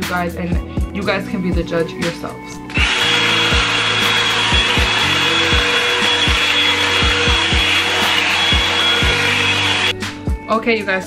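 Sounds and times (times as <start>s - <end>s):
hot air brush motor whine: 2.7s - 9.9s.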